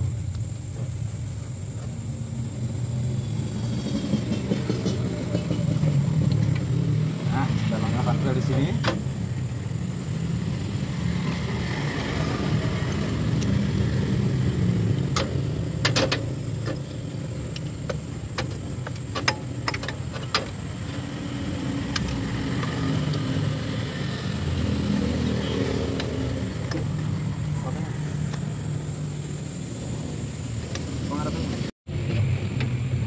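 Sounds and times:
sharp metallic clicks: 15.0 - 23.7.

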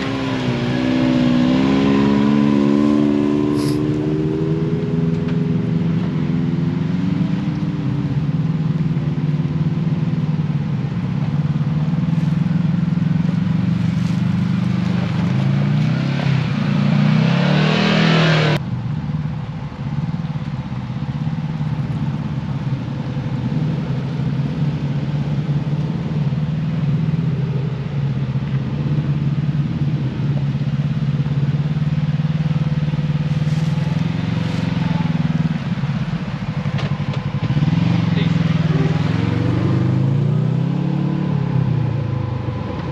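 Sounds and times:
engine revving with harsh hiss: 0.0 - 4.7, 33.2 - 36.0
side-by-side engine running: 0.0 - 42.9
side-by-side passing close by: 0.0 - 42.9.

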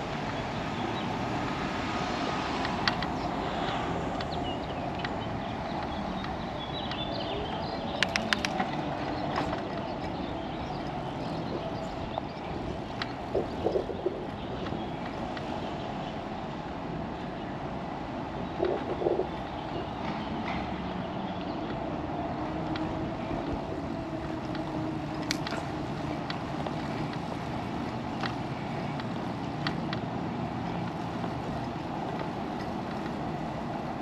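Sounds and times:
wind and tyre noise: 0.0 - 34.0
sharp clicks: 7.9 - 8.8.

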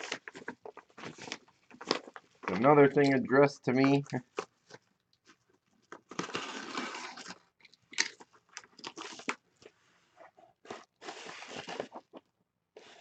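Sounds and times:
padded envelope crinkling: 0.0 - 3.1.

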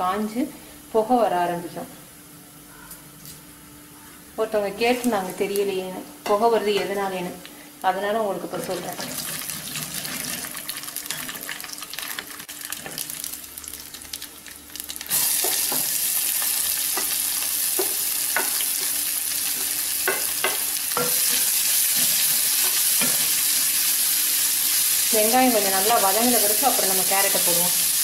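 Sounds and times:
hot oil sizzling: 6.4 - 28.0.

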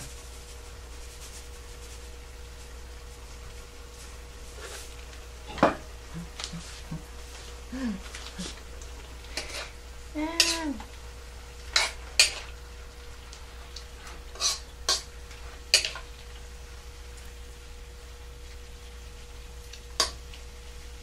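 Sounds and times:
metal utensil scraping a wok: 9.3 - 9.8, 10.4 - 10.8, 11.7 - 12.5, 14.0 - 16.0.

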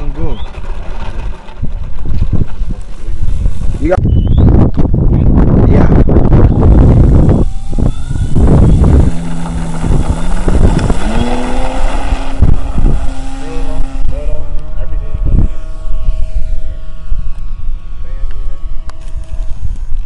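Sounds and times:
wind buffeting microphone: 0.0 - 20.0
model plane motor running: 6.1 - 20.0.

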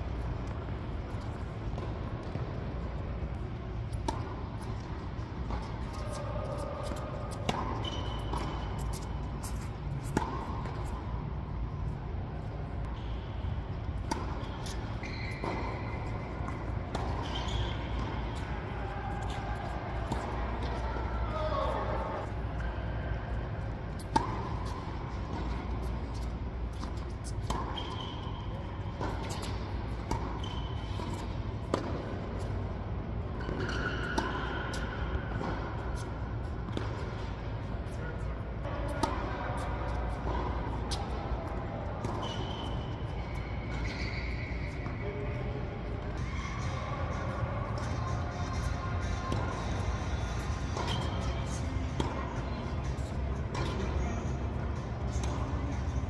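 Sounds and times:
low rumble of hall: 0.0 - 56.0
racquets hitting tennis ball: 0.2 - 12.1, 12.8 - 22.7, 23.5 - 38.0, 38.7 - 56.0
tennis ball bounces: 3.8 - 11.1, 13.8 - 20.8, 23.9 - 32.6, 33.3 - 38.0, 38.8 - 56.0.

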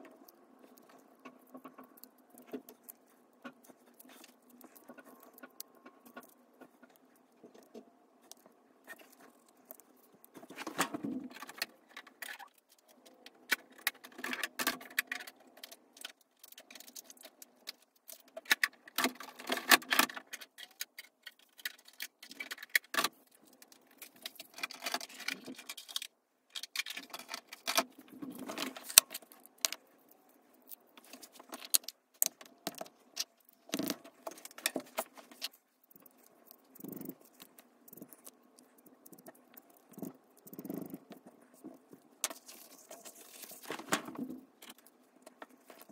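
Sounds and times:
paper rustling and crinkling: 41.6 - 44.8.

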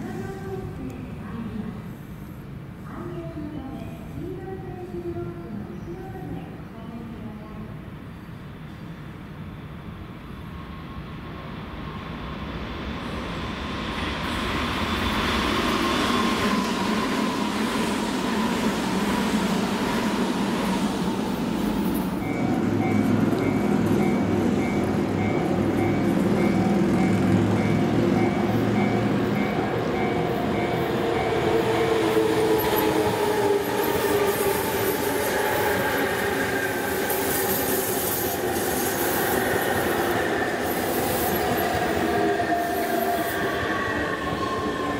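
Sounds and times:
electric train passing: 9.1 - 44.9.

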